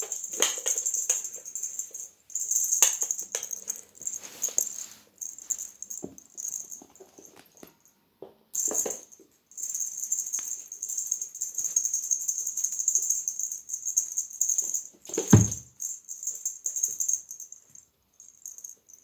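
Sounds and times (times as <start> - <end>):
wand toy rattling and jingling: 0.0 - 7.7, 8.6 - 19.0
kitten thudding onto floor: 15.2 - 15.7.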